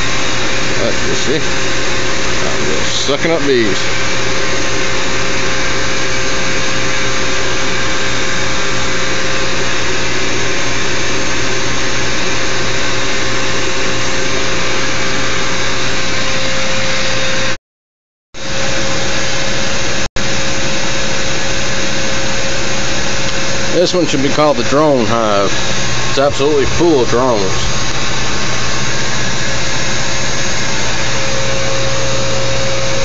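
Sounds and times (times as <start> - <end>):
vacuum rushing air and humming: 0.0 - 17.5, 18.4 - 33.0.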